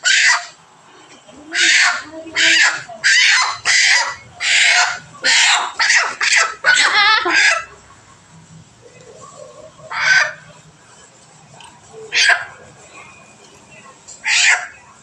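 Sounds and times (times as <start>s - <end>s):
chicken squawking in distress: 0.0s - 0.6s, 1.4s - 7.7s, 9.9s - 10.4s, 12.1s - 12.6s, 14.2s - 14.8s.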